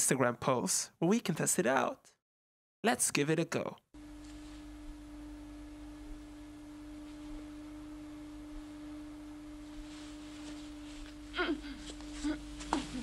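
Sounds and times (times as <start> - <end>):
steady single-pitch tone: 4.0 - 12.6
faint low hum and hiss: 4.0 - 13.0.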